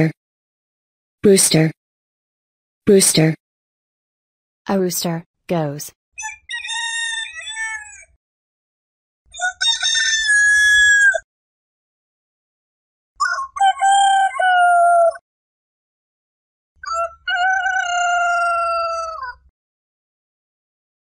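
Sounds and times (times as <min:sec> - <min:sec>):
rooster crowing: 0:09.6 - 0:11.2, 0:13.2 - 0:15.2, 0:16.9 - 0:19.4.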